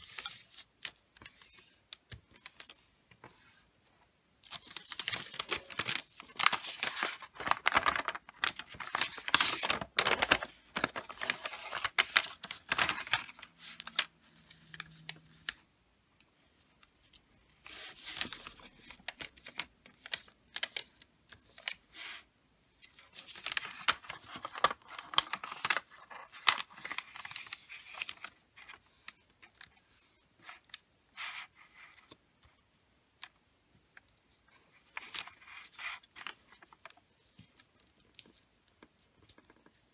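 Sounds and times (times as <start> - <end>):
wrapping paper rustling and crackling: 4.4 - 15.6, 17.6 - 32.2, 34.3 - 38.5.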